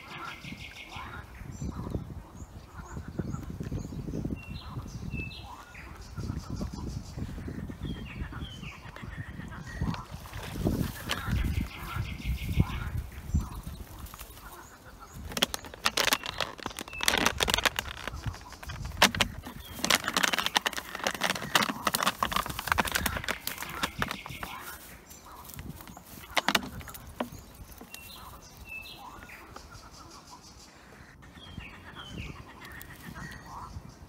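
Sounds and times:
dry grass rustling: 0:04.4 - 0:30.5, 0:31.5 - 0:33.9
plastic bottle crackling and crunching: 0:09.7 - 0:29.5.

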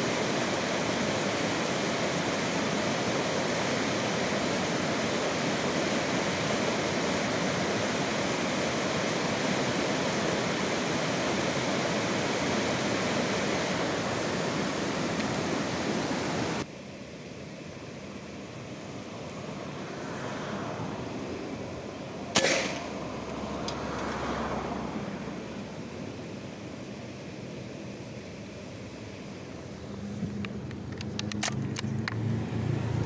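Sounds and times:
running water: 0:00.0 - 0:16.7.

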